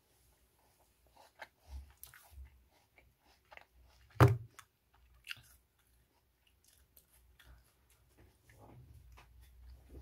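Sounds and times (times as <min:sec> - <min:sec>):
apple crunching and chewing: 0:01.0 - 0:08.6.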